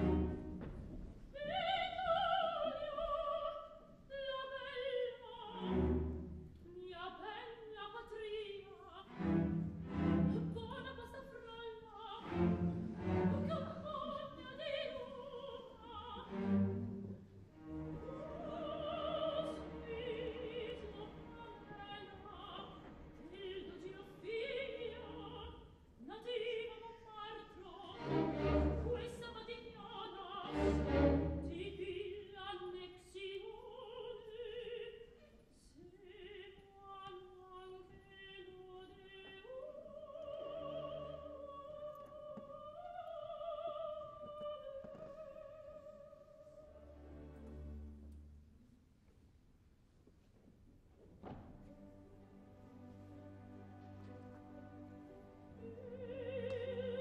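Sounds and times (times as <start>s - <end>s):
orchestra with strings: 0.0s - 2.4s, 5.3s - 6.7s, 8.8s - 25.5s, 27.2s - 32.3s, 46.4s - 48.7s, 51.3s - 57.0s
operatic soprano singing: 1.3s - 47.4s, 53.1s - 57.0s.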